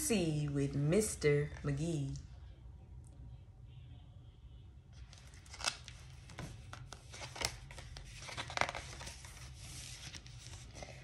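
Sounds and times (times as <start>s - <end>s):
book pages rustling: 5.0s - 11.0s.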